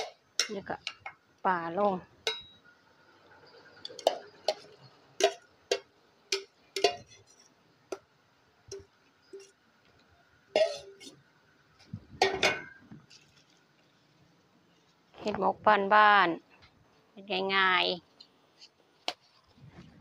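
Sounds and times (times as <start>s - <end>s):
metal spoon clinking on steel bowl: 2.3s - 2.6s, 3.8s - 7.4s.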